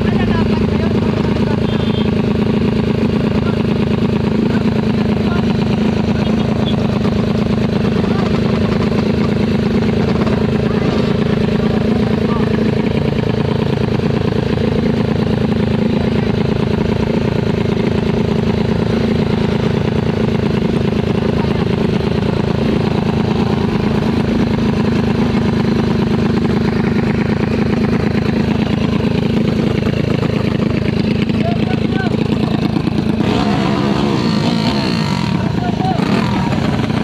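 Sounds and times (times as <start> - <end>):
motorcycle engine running: 0.0 - 37.0.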